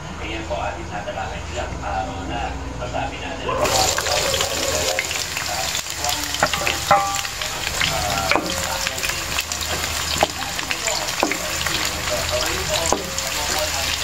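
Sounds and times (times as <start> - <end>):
onions sizzling in oil: 3.6 - 14.0.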